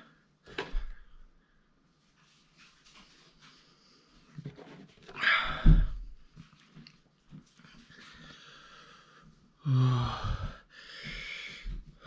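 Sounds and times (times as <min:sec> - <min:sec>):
man breathing hard: 0:08.0 - 0:12.0
man moaning: 0:09.6 - 0:10.6.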